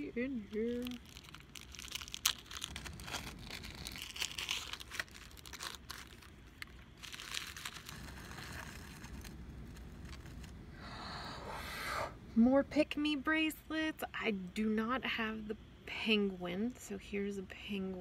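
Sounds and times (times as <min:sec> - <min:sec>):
tissue paper and plastic crinkling: 0:00.2 - 0:10.6.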